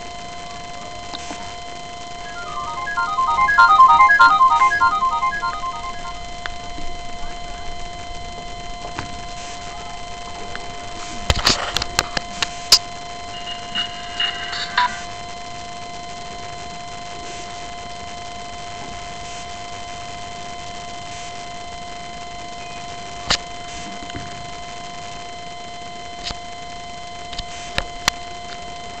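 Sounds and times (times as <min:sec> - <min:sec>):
high electronic whine: 0:01.8 - 0:16.6
faint beeps: 0:02.2 - 0:06.4, 0:13.3 - 0:15.1.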